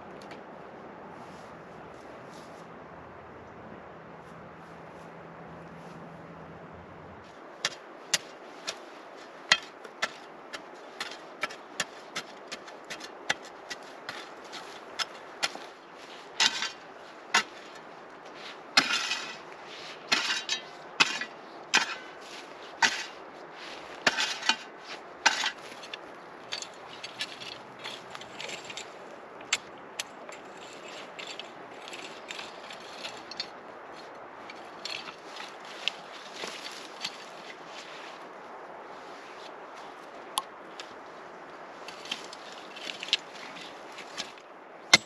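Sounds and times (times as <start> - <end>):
spade striking and scraping soil: 7.6 - 37.9, 41.8 - 45.0.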